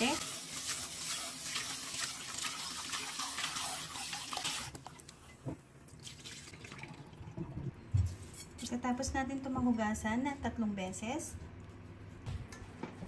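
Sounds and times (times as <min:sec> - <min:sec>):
hands scrubbing rice in water: 0:00.0 - 0:04.7
tap water running into pot: 0:00.0 - 0:05.1
water pouring into metal sink: 0:00.3 - 0:04.8.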